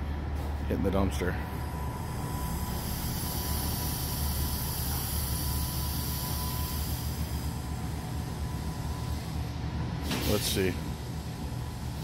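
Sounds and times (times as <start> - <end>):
diesel truck engine rumbling: 0.0 - 12.0
high hiss: 2.7 - 7.6.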